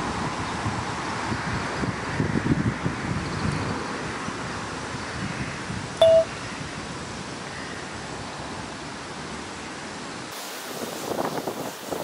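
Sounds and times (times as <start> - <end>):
wind on microphone: 0.0 - 7.3, 10.4 - 12.0
wind gusts buffeting microphone: 0.0 - 7.4, 8.0 - 12.0
electronic beep: 6.0 - 6.3.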